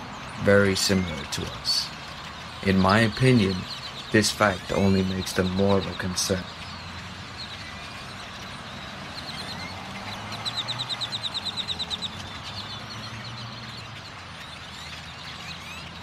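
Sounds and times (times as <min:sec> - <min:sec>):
flock of birds chattering: 0:00.0 - 0:16.0.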